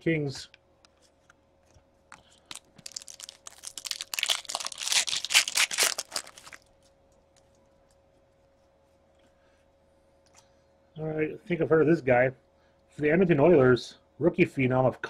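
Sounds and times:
foil wrapper tearing and crinkling: 2.4 - 6.7.

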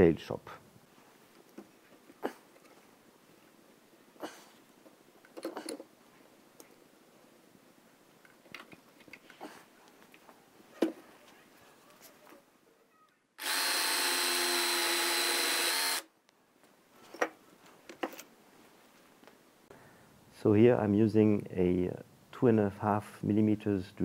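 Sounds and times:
jigsaw cutting wood: 13.4 - 16.1.

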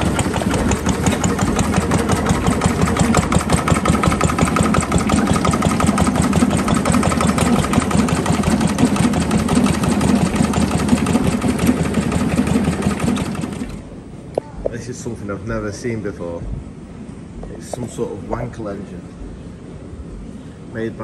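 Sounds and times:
old stationary engine running: 0.0 - 14.0.

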